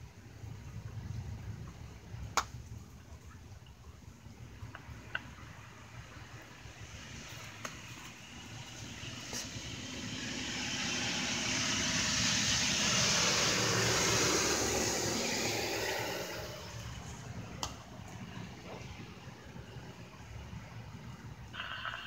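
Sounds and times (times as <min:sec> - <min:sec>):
car passing by: 0:06.3 - 0:20.9.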